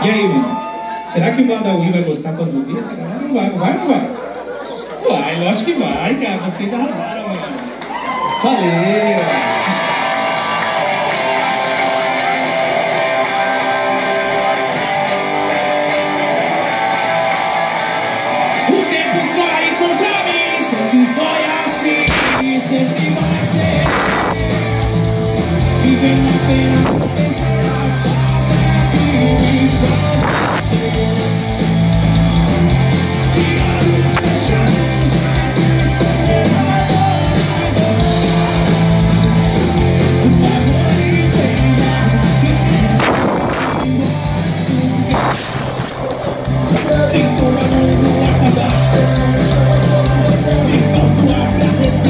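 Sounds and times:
drums: 0:07.8 - 0:52.0
electric guitars playing chords: 0:09.2 - 0:52.0
person singing: 0:18.6 - 0:52.0
loud crash: 0:45.1 - 0:46.3.

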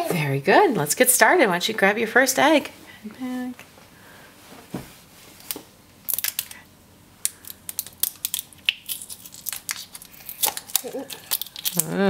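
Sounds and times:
plastic shrink-wrap crinkling: 0:07.4 - 0:12.0.

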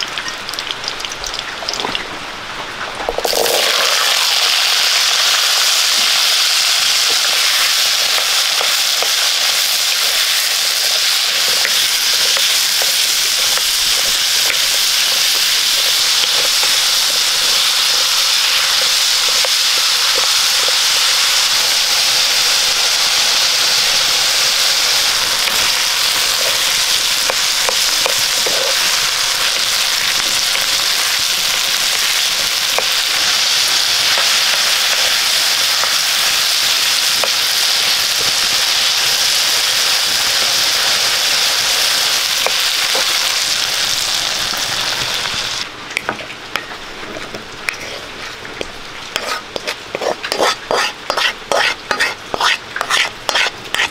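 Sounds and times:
shallots sizzling in hot fat: 0:00.0 - 0:02.0, 0:02.9 - 0:53.9
wooden spoon stirring in pan: 0:06.9 - 0:21.8, 0:46.1 - 0:53.9.

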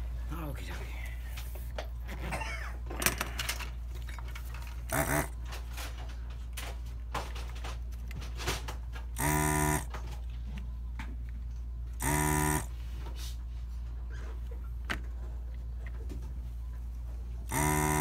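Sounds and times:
steady low hum: 0:00.0 - 0:18.0
vacuum pump buzzing: 0:04.8 - 0:05.5, 0:09.1 - 0:10.0, 0:12.0 - 0:12.8, 0:17.4 - 0:18.0.

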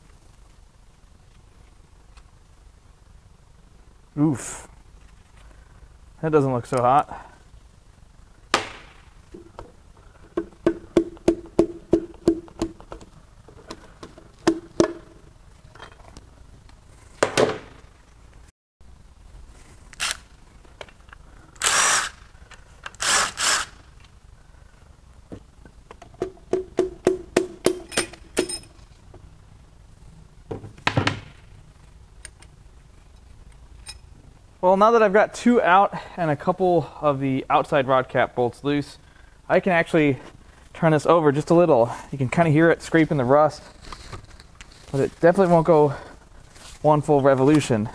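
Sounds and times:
metal tools clattering: 0:27.8 - 0:28.8.

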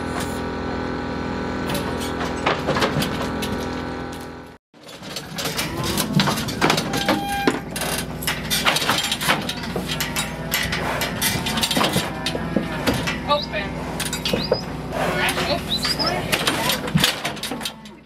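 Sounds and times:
steel gates clanking and rattling: 0:04.8 - 0:18.0
low engine hum: 0:09.0 - 0:17.0
cattle bawling: 0:09.7 - 0:16.9.

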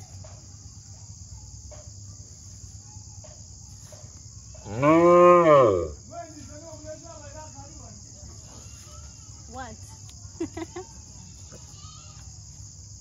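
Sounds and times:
crickets chirping: 0:00.0 - 0:13.0
cow mooing: 0:04.6 - 0:06.0.

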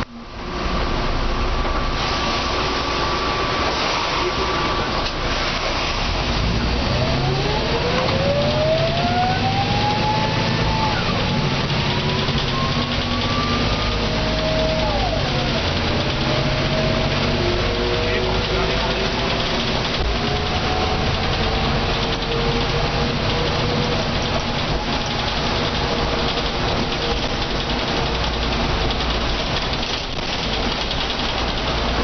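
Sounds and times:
bus diesel engine pulling away: 0:00.0 - 0:32.0
rising gearbox whine: 0:07.0 - 0:17.6.

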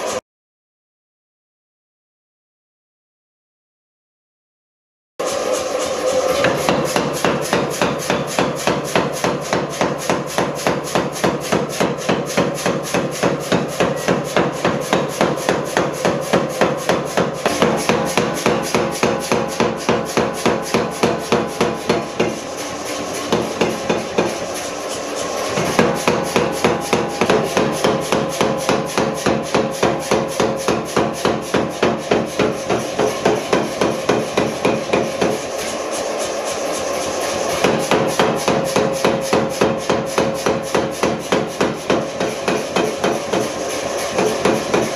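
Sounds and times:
power hammer pounding steel: 0:05.2 - 0:44.9
steady hum: 0:11.5 - 0:44.2.

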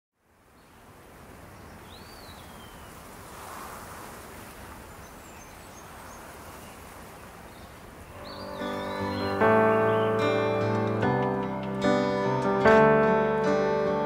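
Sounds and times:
background hiss: 0:00.2 - 0:14.0
faint high bird chirps: 0:04.8 - 0:10.6
acoustic guitar music: 0:08.2 - 0:14.0.

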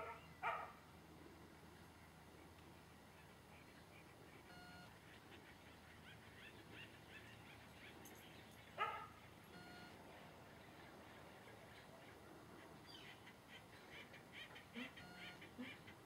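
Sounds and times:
dog barking: 0:00.0 - 0:00.8, 0:08.8 - 0:09.2
short beeping tones: 0:04.5 - 0:04.9, 0:09.5 - 0:10.0, 0:15.0 - 0:15.4.

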